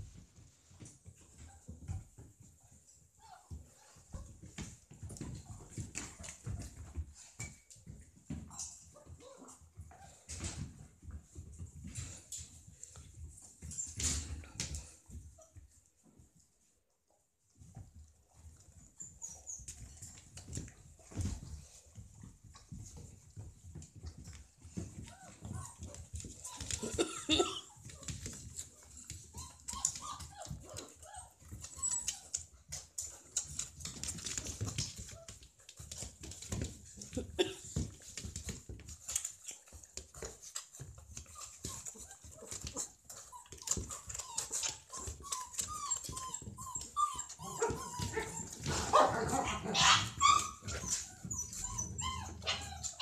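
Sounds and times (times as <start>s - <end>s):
paws scuffling on blanket: 17.5s - 53.0s
puppies whimpering and squeaking: 17.7s - 21.8s, 24.2s - 35.4s, 39.0s - 53.0s.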